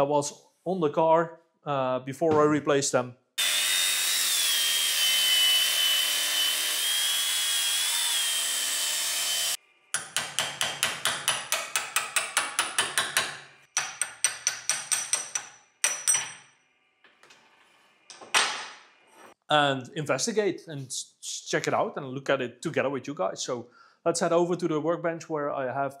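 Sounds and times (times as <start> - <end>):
angle grinder cutting steel: 3.4 - 9.6.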